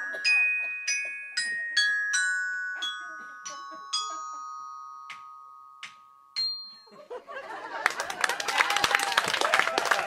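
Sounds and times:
glockenspiel notes ringing: 0.0s - 7.6s
audience applause: 7.6s - 10.0s.

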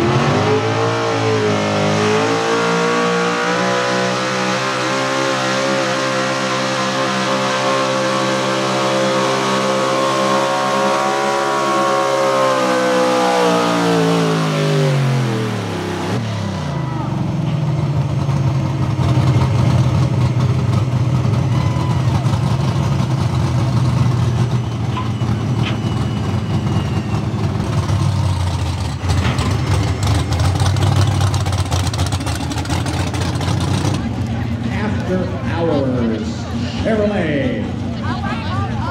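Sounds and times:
engine at full throttle: 0.0s - 38.9s
engine idling unevenly: 14.1s - 38.9s.

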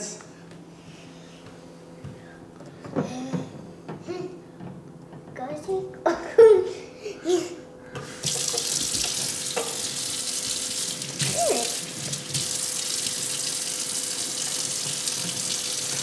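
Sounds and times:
sink tap running: 8.0s - 16.0s
child washing hands under tap: 8.2s - 16.0s.

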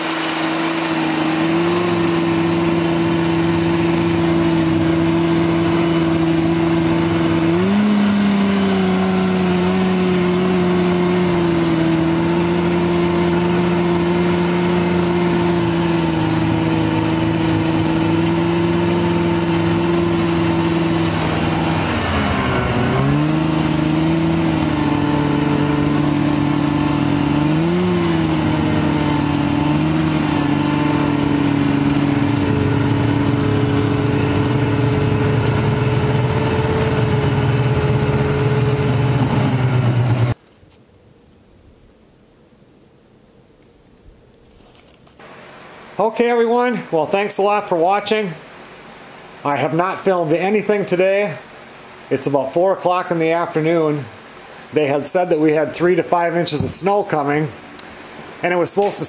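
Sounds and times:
snowmobile engine running: 0.0s - 40.4s, 54.8s - 59.0s
track and wind noise: 0.0s - 40.4s.

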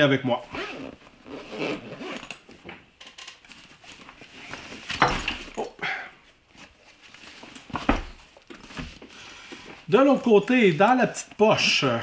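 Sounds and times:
nylon bag rustling: 0.4s - 2.4s.

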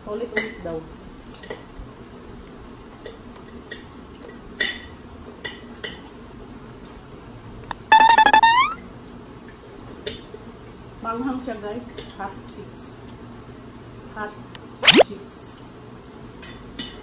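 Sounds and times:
high fluttering squeak: 7.8s - 8.8s.

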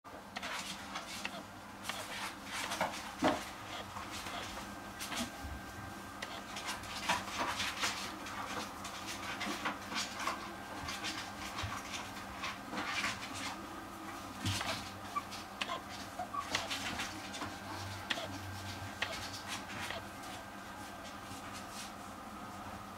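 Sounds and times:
faint puppy squeaks: 1.2s - 2.1s, 3.6s - 4.6s, 14.5s - 20.3s
puppy panting: 14.4s - 20.4s.

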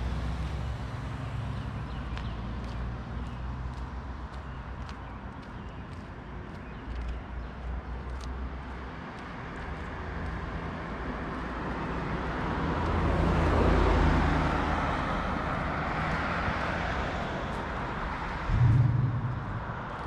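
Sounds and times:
road vehicle passing by: 0.0s - 7.1s, 8.1s - 20.0s.

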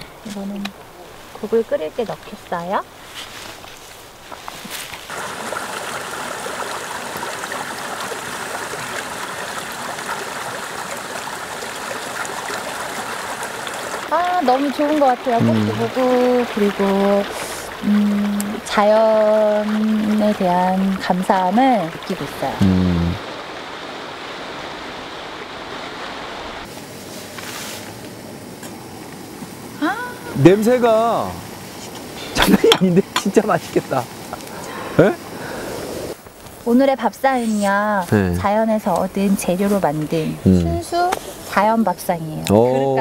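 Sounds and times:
thin hissing noise: 0.0s - 5.1s, 26.6s - 42.4s
stream running over stones: 0.0s - 43.0s.

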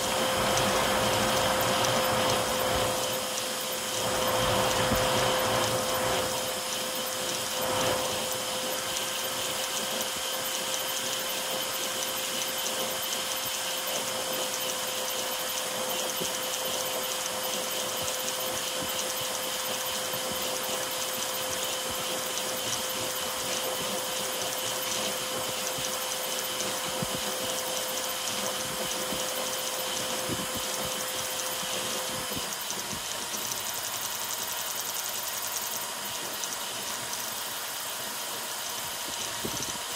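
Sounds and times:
cooling air hiss: 0.0s - 11.1s
steady hum: 0.0s - 39.9s
stepper motors whirring and buzzing: 0.0s - 39.9s.

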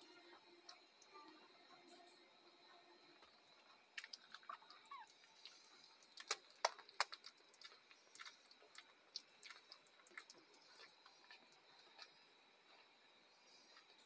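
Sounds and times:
puppies suckling wet clicks: 4.0s - 12.2s.

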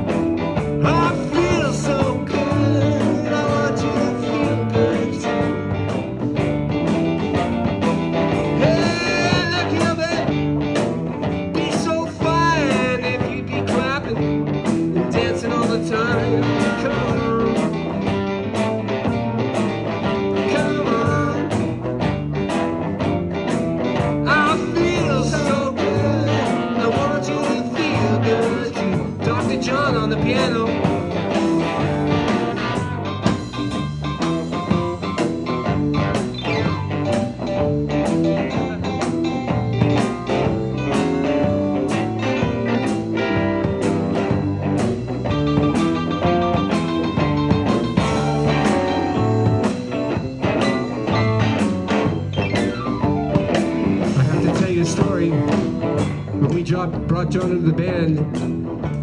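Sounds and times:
bending lead guitar notes: 0.0s - 59.0s
live band playing: 0.0s - 59.0s.

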